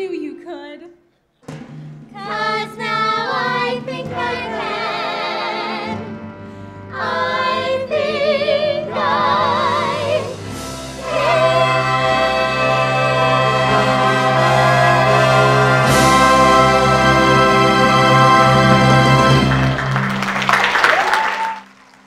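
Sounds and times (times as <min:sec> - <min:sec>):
backing music: 0:01.4 - 0:22.0
voices singing with vibrato: 0:02.2 - 0:06.2, 0:06.9 - 0:19.6.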